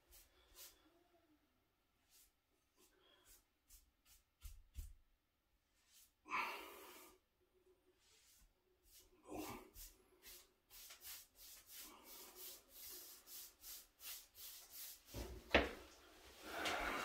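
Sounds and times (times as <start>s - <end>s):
brush scraping: 0.0s - 0.8s, 2.0s - 5.0s, 8.0s - 15.4s
paintbrush swishes on wood: 0.0s - 0.8s, 2.0s - 5.0s, 8.0s - 15.6s.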